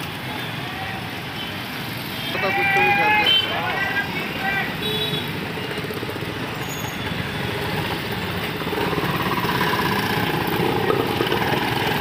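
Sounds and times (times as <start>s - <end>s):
auto-rickshaw and motorcycle engines: 0.0s - 12.0s
vehicle passing close: 5.5s - 12.0s.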